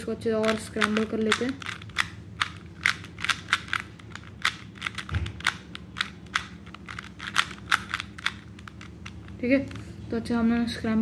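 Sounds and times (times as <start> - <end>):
puzzle cube clicking: 0.4 - 9.8.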